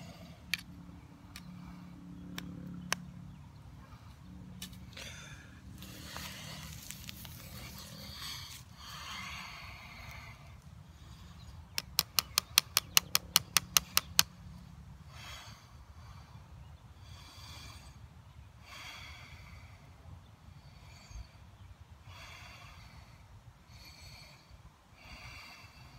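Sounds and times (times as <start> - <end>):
sharp clicks of blade: 11.7 - 14.3.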